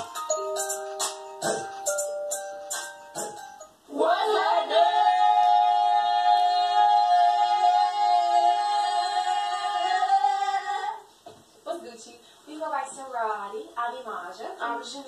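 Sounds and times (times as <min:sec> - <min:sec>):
women singing in harmony: 0:03.9 - 0:11.1.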